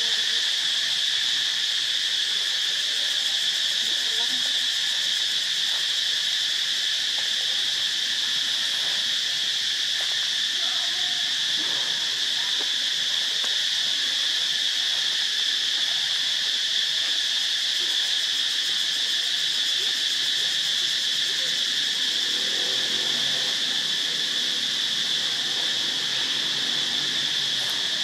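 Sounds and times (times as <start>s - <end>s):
insect chorus drone: 0.0s - 28.0s.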